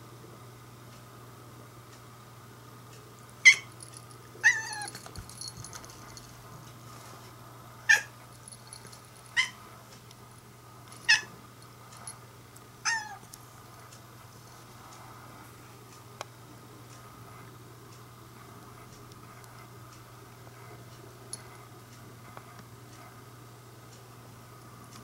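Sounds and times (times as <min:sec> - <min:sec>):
cat meowing: 0:12.9 - 0:13.2.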